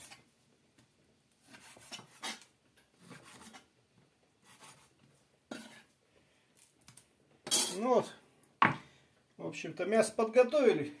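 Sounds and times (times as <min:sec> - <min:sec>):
knife slicing on wooden board: 0:01.4 - 0:02.5.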